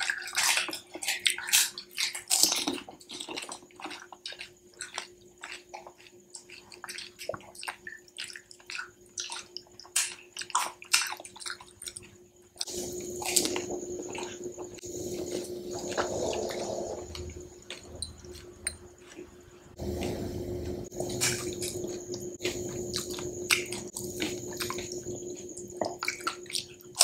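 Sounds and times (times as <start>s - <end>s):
crisp shells crunched and chewed: 0.0s - 14.8s.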